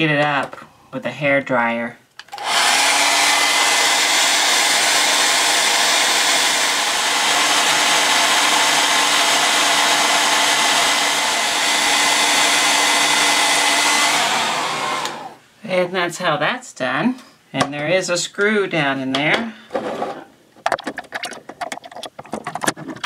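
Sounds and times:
hair dryer blowing: 2.3s - 15.4s.

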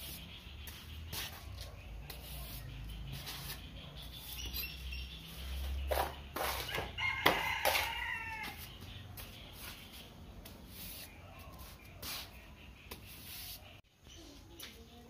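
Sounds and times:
rooster crowing: 6.7s - 8.7s.

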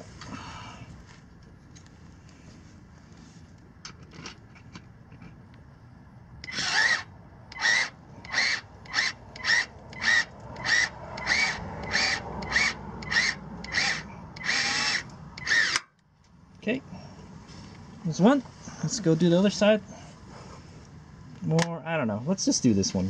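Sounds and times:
cordless drill whirring: 6.4s - 15.8s.

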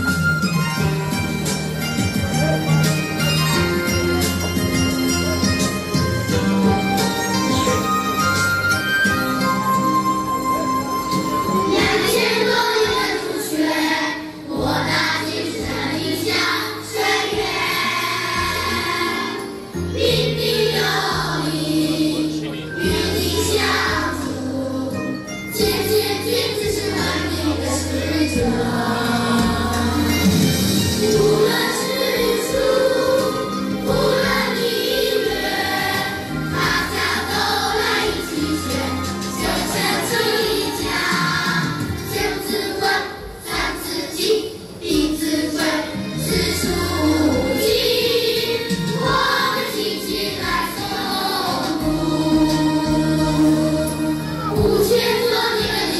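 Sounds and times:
musical accompaniment: 0.0s - 55.9s
children's choir singing: 10.8s - 55.9s.

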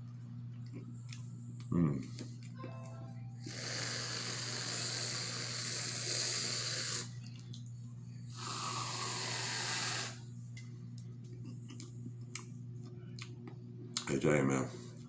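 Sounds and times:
whipped cream can spraying: 8.4s - 10.2s.

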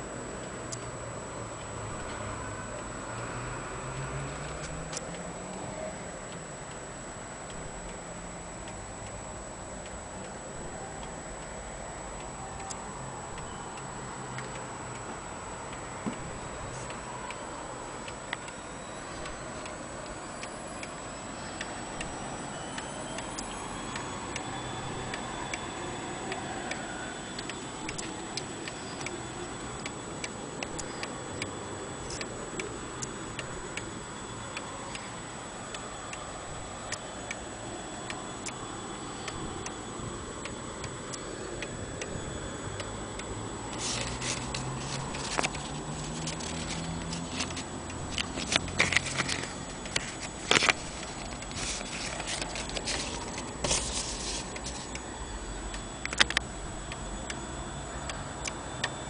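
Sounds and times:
clock ticking: 4.0s - 25.3s, 27.4s - 35.0s, 39.2s - 57.4s
paper rustling: 43.8s - 54.9s.

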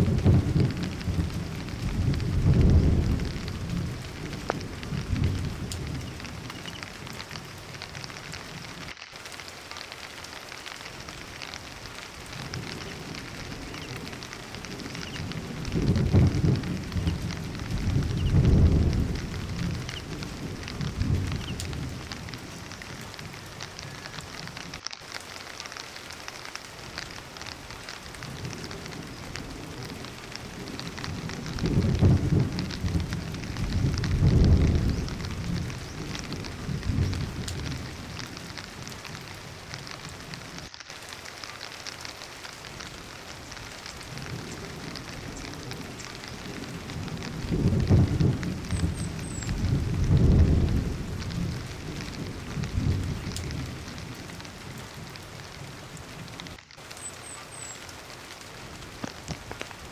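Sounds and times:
deep rumbling: 0.0s - 6.6s
heavy rain pouring: 0.0s - 59.9s.

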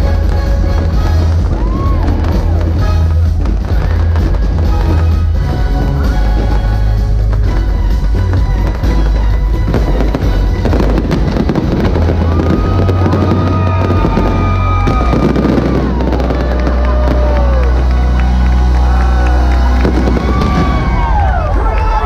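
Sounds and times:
fireworks crackling and popping: 0.0s - 22.0s
loud music with heavy bass: 0.0s - 22.0s.

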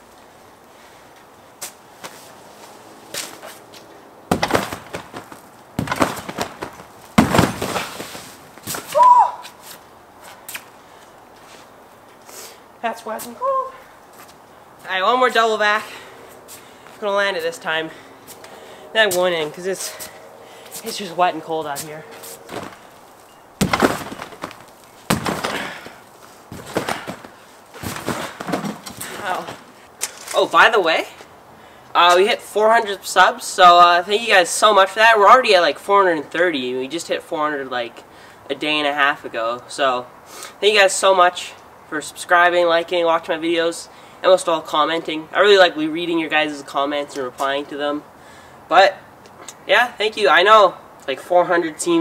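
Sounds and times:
sharp knocks: 4.3s - 8.0s, 23.6s - 29.6s
trampoline bounce thumps: 4.3s - 9.1s, 22.5s - 22.9s, 23.6s - 29.7s.

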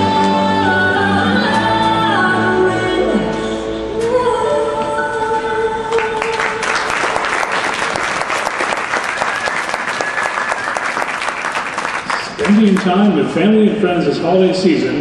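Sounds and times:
audience applauding: 5.9s - 13.2s.

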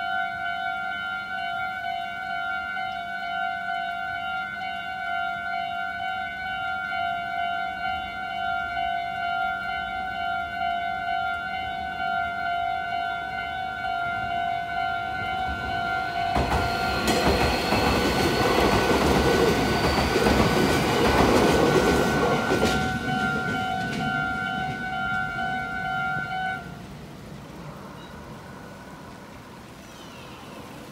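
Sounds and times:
quiet street sound: 0.0s - 30.9s
train wheels rushing: 15.3s - 26.3s.

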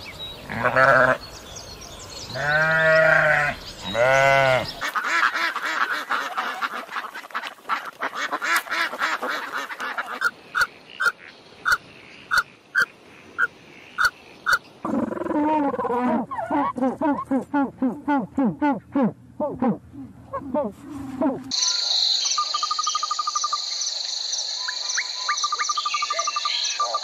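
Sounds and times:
bird calls: 0.0s - 17.4s, 20.3s - 27.0s
sheep bleating: 0.5s - 1.2s, 2.3s - 4.8s.

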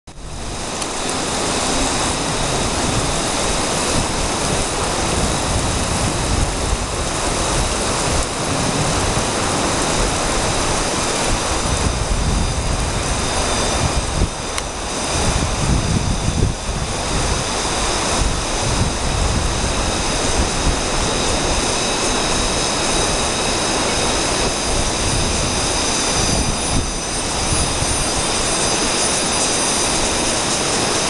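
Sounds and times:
fast river rushing: 0.1s - 31.0s.

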